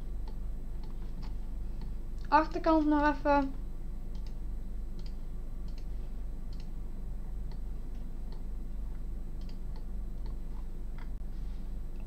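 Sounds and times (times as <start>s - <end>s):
low electrical hum: 0.0s - 12.0s
computer mouse clicking: 4.1s - 4.4s, 5.0s - 5.9s, 6.5s - 6.7s, 9.4s - 11.2s.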